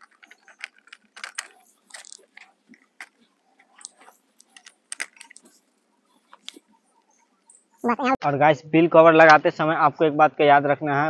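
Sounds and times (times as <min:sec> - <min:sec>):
plastic bag of bolts rustling: 0:00.0 - 0:05.6
plastic parts clicking: 0:00.0 - 0:05.6, 0:06.2 - 0:06.6.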